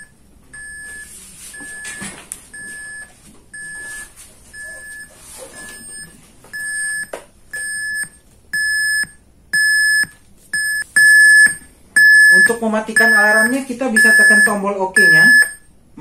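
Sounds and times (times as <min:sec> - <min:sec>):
alarm beeping: 0:00.0 - 0:15.7.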